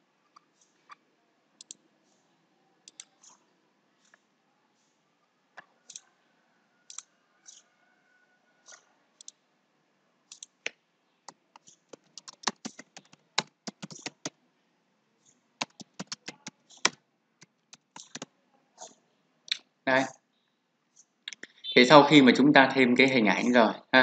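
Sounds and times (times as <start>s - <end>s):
computer keyboard typing: 2.8s - 3.4s, 11.3s - 14.4s, 15.6s - 18.3s.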